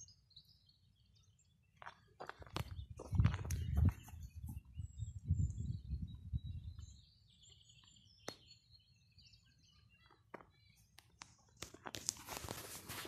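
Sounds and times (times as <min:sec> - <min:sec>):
faint bird chirps: 0:00.0 - 0:11.8
microphone rumbling and clicking: 0:02.2 - 0:06.9.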